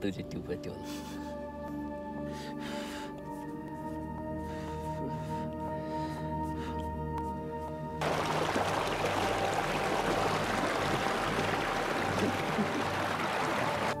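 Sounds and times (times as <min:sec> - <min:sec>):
water rushing in concrete channel: 0:08.0 - 0:14.0.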